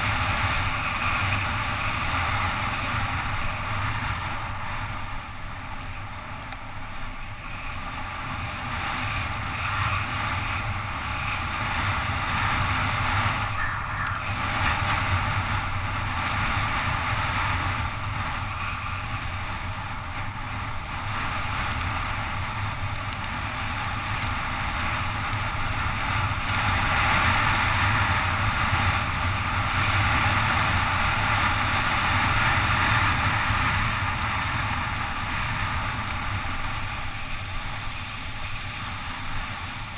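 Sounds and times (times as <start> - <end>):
wind rushing on helmet camera: 0.0 - 39.9
tyre hiss on wet asphalt: 14.3 - 39.9.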